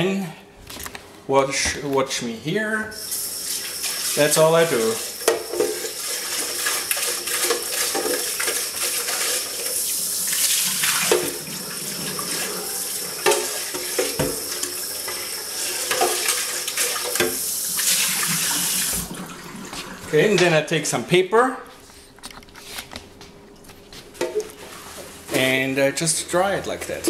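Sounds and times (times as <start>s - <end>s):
tap water splashing into sink: 4.8s - 9.4s, 10.3s - 12.5s, 13.2s - 15.2s, 15.8s - 19.8s.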